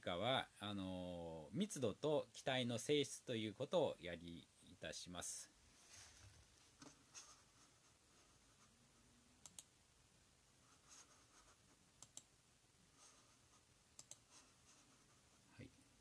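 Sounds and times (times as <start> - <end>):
mouse double-clicks: 14.0 - 14.2.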